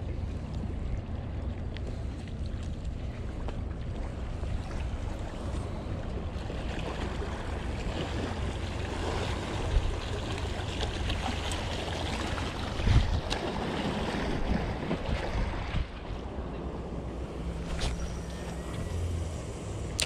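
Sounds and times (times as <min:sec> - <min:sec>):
wind buffeting microphone: 0:12.3 - 0:19.5.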